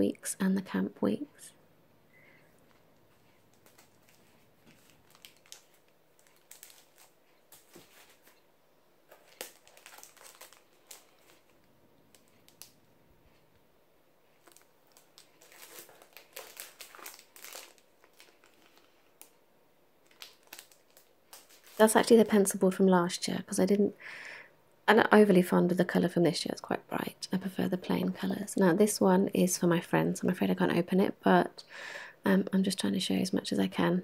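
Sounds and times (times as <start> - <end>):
plastic shrink-wrap crinkling: 2.6 - 8.5, 9.1 - 13.4, 14.3 - 19.4, 20.0 - 22.6.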